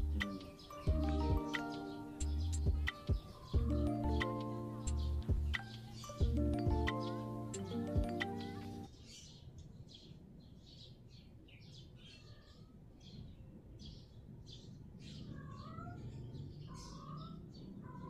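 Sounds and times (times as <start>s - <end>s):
music: 0.0s - 8.9s
small birds chirping: 0.0s - 18.0s.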